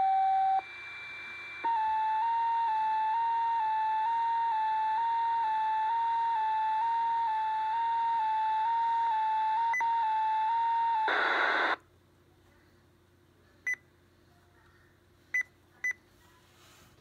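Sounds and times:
two-tone alarm from scanner speaker: 1.6s - 11.8s
radio static burst: 11.1s - 11.8s.

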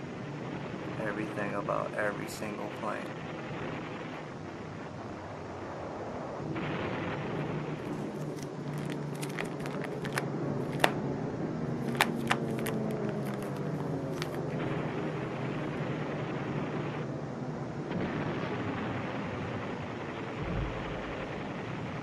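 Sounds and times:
handling clicks and crackles: 7.8s - 11.0s, 11.7s - 14.6s
low rumble: 20.3s - 22.0s.

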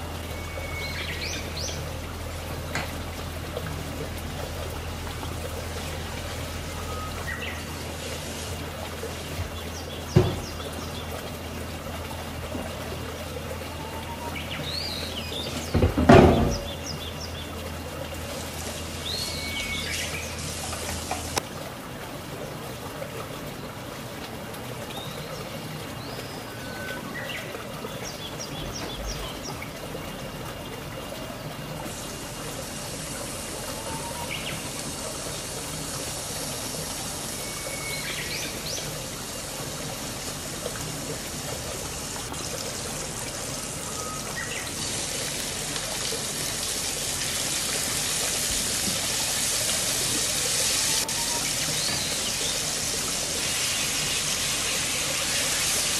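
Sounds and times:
tap water running: 0.0s - 55.9s
food sizzling in oil: 47.3s - 55.9s.

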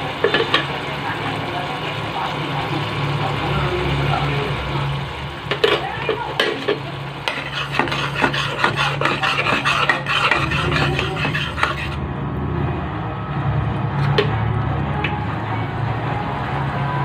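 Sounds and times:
spatula scraping a pan: 5.5s - 12.0s.

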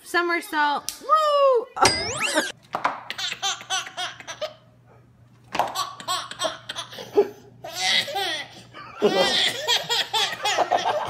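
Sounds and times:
baby laughing: 3.1s - 4.6s, 5.6s - 11.0s.

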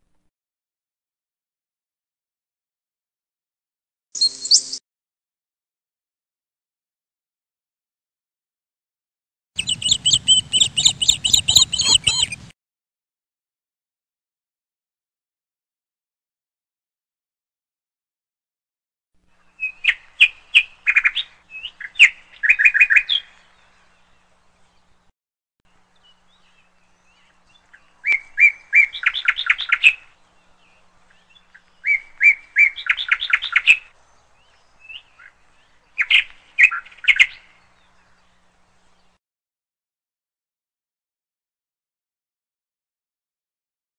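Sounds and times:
myna sharp chattering calls: 9.6s - 12.5s.

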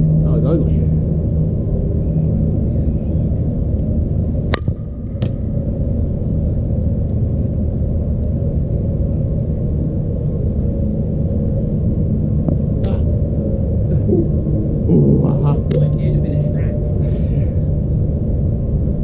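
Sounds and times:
low rumble: 0.0s - 19.0s
bat cracking a ball: 4.5s - 5.4s.

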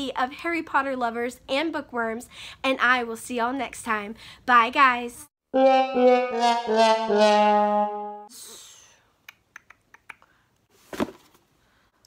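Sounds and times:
sad trombone brass sting: 5.6s - 8.3s.

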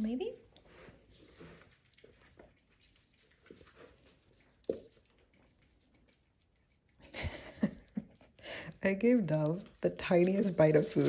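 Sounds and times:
kittens scuffling on floor: 0.4s - 5.1s, 9.3s - 11.0s.

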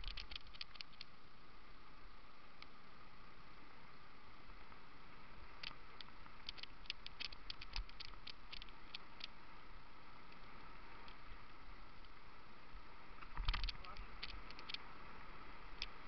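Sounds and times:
light clicks and rattles: 0.0s - 1.2s, 5.6s - 9.4s, 13.2s - 14.9s
bike tyre noise on dirt: 0.0s - 16.0s.

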